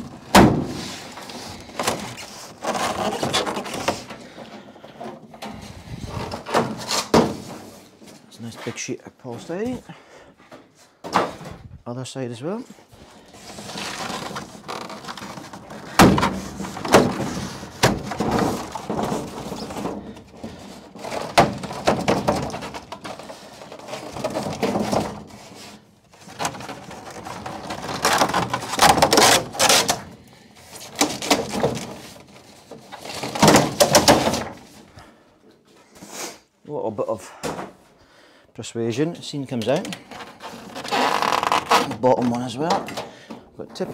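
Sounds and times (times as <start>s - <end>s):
foam scraping and creaking: 0.0s - 9.8s, 12.4s - 34.9s, 39.5s - 43.0s.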